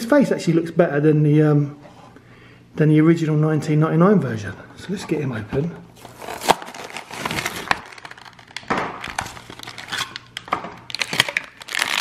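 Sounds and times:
plastic blister pack crackling: 6.0 - 12.0.

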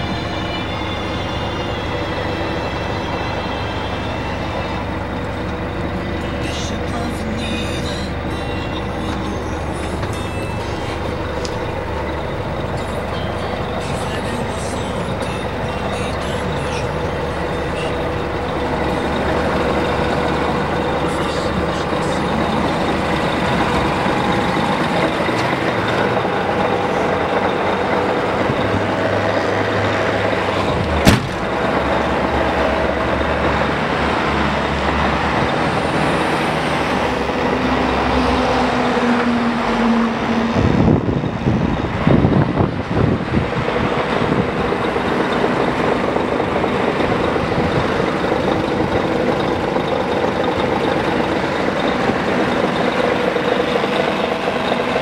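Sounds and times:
truck diesel engine idling: 0.0 - 55.0
low bumps and rustling: 30.7 - 31.8
cab door slamming: 30.8 - 31.7.

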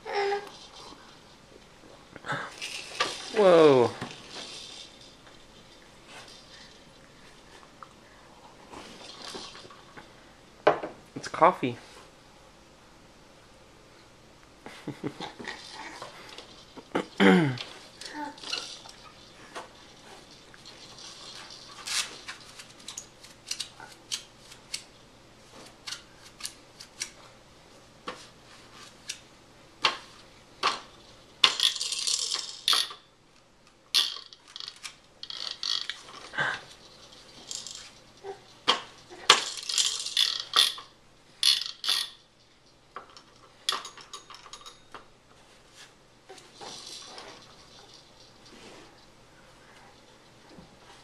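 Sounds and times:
plastic toys clicking and rattling: 2.5 - 6.8, 15.2 - 24.9, 31.4 - 33.0, 33.9 - 44.8, 46.4 - 48.3.

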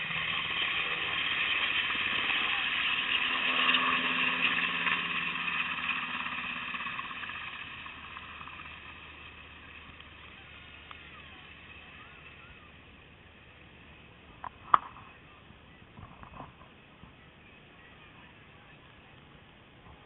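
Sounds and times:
helicopter flying past: 0.0 - 15.3.

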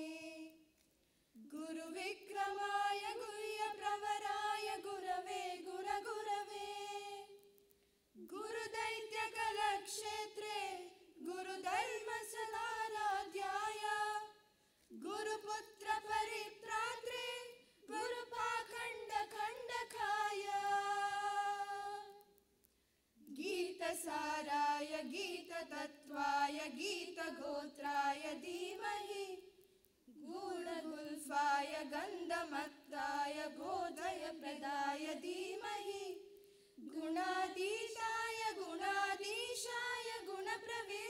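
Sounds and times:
women singing in unison: 0.0 - 0.7, 1.4 - 7.6, 8.2 - 22.4, 23.2 - 41.0.

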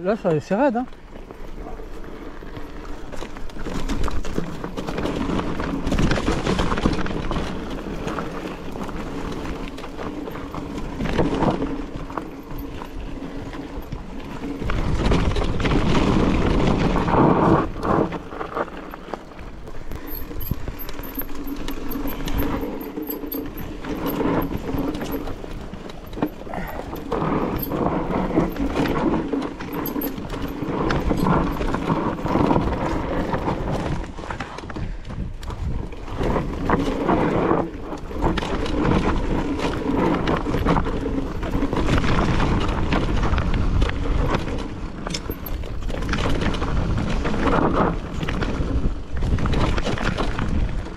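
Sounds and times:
bike rattling: 0.0 - 50.9.

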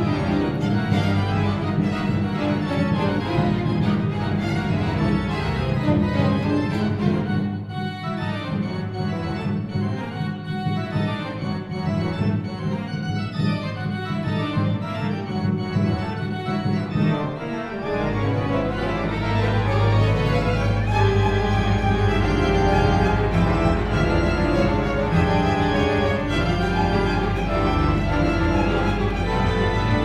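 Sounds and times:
string orchestra: 0.0 - 30.0
organ sustained low chords: 14.8 - 30.0.

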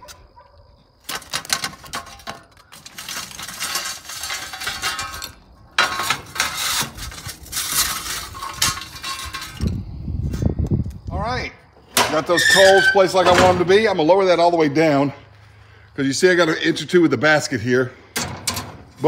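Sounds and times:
charcoal clinking: 1.1 - 9.8
metal shovel scraping tiled floor: 1.4 - 9.8.

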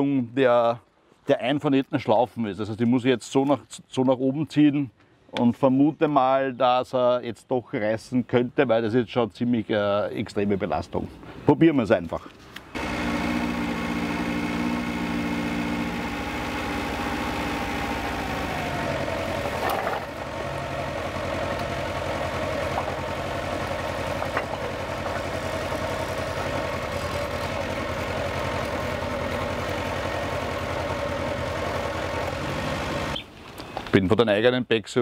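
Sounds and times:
forklift engine running: 12.7 - 33.2.

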